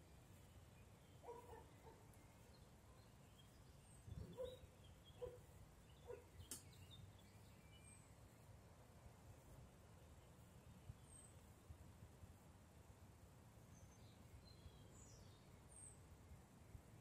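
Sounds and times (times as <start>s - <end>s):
birds chirping: 0.0s - 8.5s
low bird calls: 3.9s - 7.0s
sharp click: 6.4s - 6.8s.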